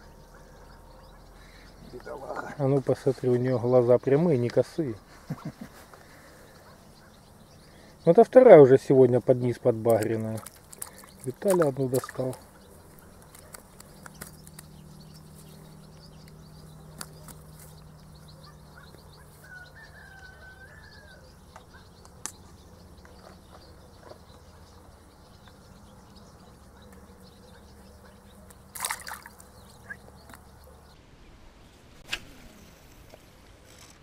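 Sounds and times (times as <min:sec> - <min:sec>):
faint chirp: 0:00.0 - 0:03.1, 0:10.4 - 0:31.0
small splash in water: 0:28.7 - 0:29.5.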